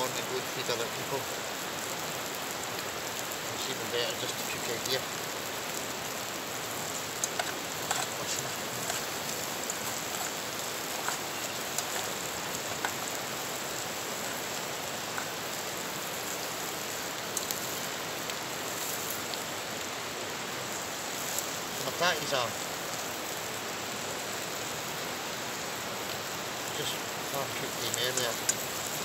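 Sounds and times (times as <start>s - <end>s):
campfire crackling: 0.0s - 29.0s
skillet frying: 0.0s - 29.0s
river rapids rushing: 2.5s - 29.0s.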